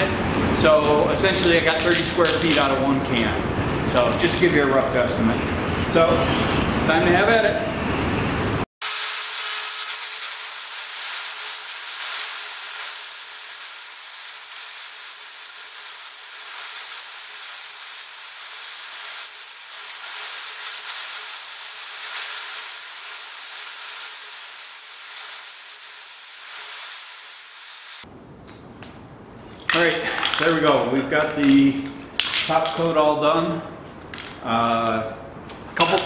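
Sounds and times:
spray paint can hissing: 0:09.9 - 0:28.0.

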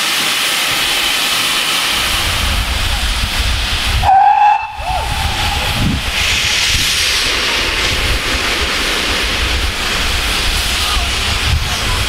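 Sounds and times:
steam locomotive hissing: 0:00.0 - 0:12.0
steam whistle: 0:04.0 - 0:05.7.

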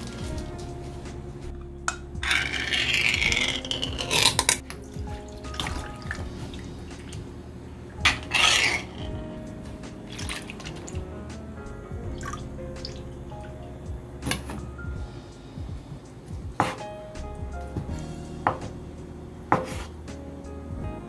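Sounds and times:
soft background music: 0:00.0 - 0:21.0
liquid splashing through strainer: 0:04.7 - 0:07.3, 0:10.1 - 0:11.1.

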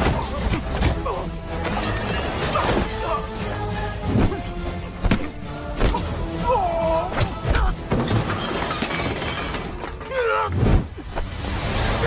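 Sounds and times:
film music score: 0:00.0 - 0:08.5
glass shattering: 0:01.5 - 0:03.1, 0:07.8 - 0:10.2.

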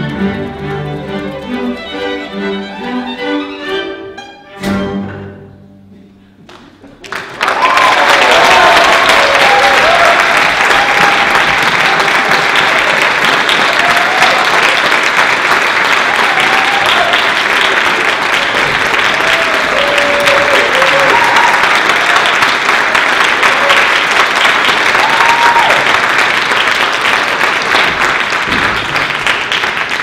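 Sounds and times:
audience clapping: 0:06.4 - 0:30.0
calls and cheers: 0:07.4 - 0:26.2.

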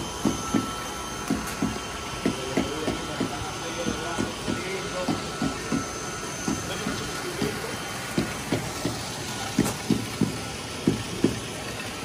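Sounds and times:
low gurgling plops: 0:04.2 - 0:12.0
water splashing into tank: 0:05.4 - 0:12.0.

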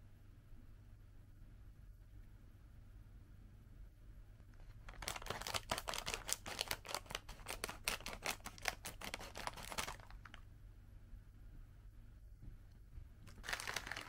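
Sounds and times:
scissors cutting plastic bag: 0:04.9 - 0:10.2, 0:13.4 - 0:14.0.

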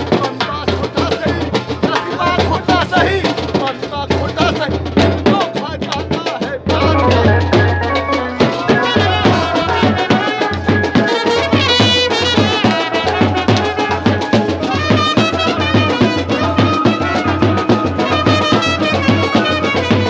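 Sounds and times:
band drum beat: 0:00.0 - 0:20.0
brass band playing: 0:06.6 - 0:20.0
trumpet melody: 0:06.7 - 0:20.0.

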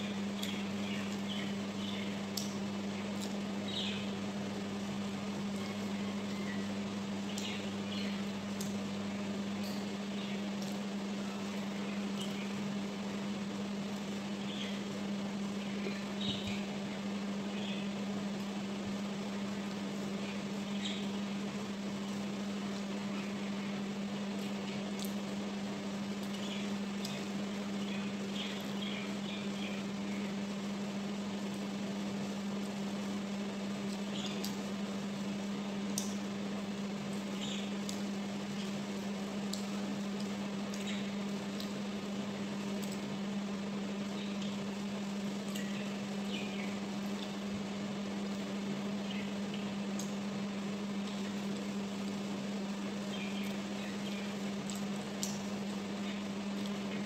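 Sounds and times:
household appliance humming: 0:00.0 - 0:57.0
faint small clicks: 0:35.9 - 0:36.2, 0:49.1 - 0:50.2, 0:53.1 - 0:55.5
faint chewing: 0:45.4 - 0:46.0.

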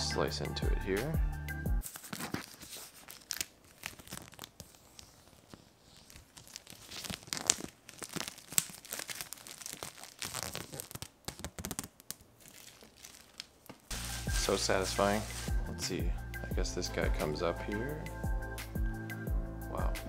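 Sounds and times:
plastic film peeling and crinkling: 0:01.8 - 0:15.7.

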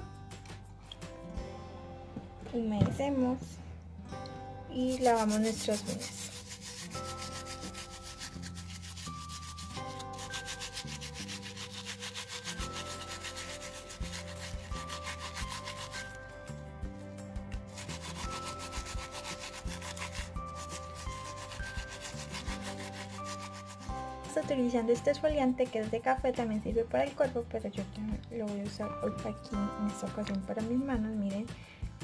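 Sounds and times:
soft background music: 0:00.0 - 0:32.0
nail brush scrubbing fingernails: 0:04.7 - 0:16.4, 0:17.5 - 0:24.0.

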